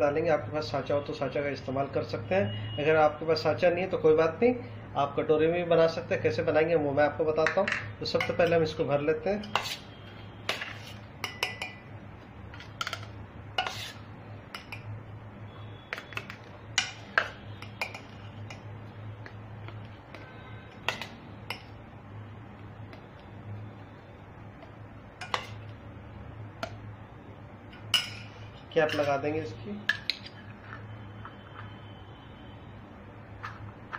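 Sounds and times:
steel spoon clinking on steel bowl: 0:07.5 - 0:08.7, 0:10.5 - 0:11.9, 0:12.6 - 0:15.0, 0:15.9 - 0:18.7, 0:20.8 - 0:21.8, 0:25.2 - 0:25.7, 0:27.8 - 0:29.2.

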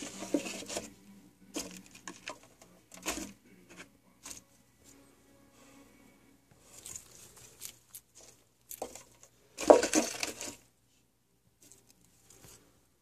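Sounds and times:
lizard crunching an insect: 0:06.7 - 0:10.3.

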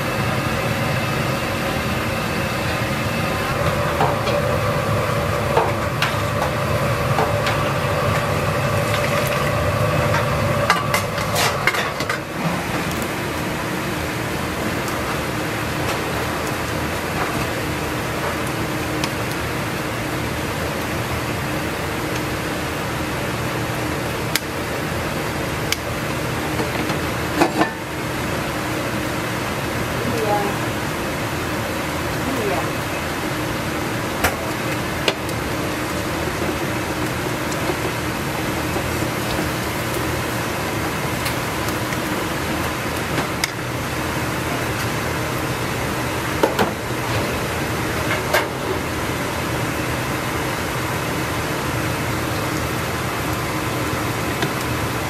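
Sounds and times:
steady rush and hum: 0:00.0 - 0:17.2
kitchen hum: 0:00.0 - 0:55.0.

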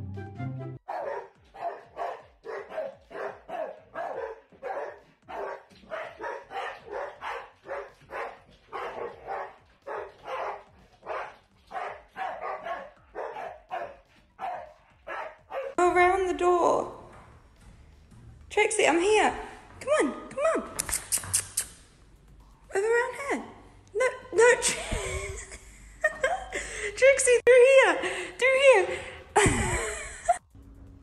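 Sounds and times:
music: 0:00.0 - 0:31.0
large dogs barking: 0:00.8 - 0:15.8.

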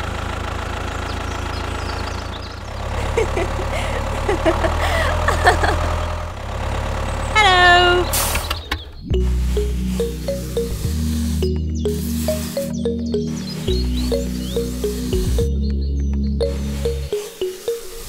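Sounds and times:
tractor engine running: 0:00.0 - 0:17.4
cartoon voice-like sounds: 0:07.4 - 0:08.1
falling pitched sound: 0:09.0 - 0:18.0
music: 0:09.1 - 0:18.0.

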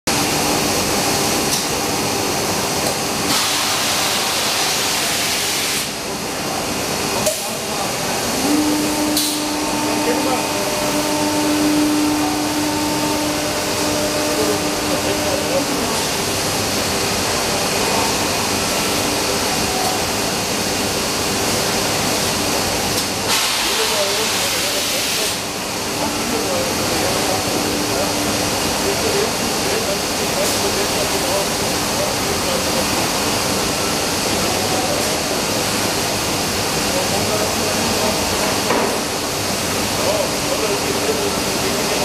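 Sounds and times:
faint machine hum: 0:00.1 - 0:42.0
machine rushing hiss: 0:03.2 - 0:06.0, 0:23.1 - 0:31.9.

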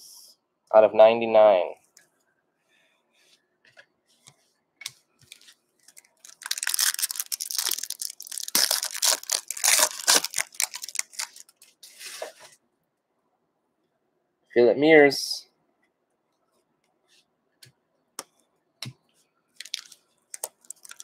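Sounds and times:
foil wrapper crinkling: 0:05.3 - 0:11.8, 0:19.6 - 0:21.0.

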